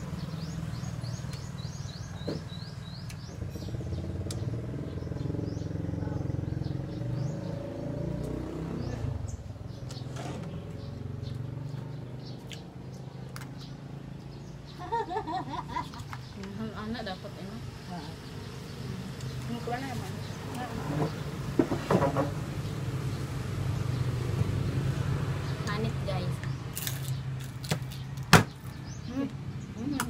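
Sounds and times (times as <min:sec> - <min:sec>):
bird chirping rapidly: 0:00.0 - 0:14.8
vehicle engine droning past: 0:00.0 - 0:14.8, 0:16.9 - 0:26.6.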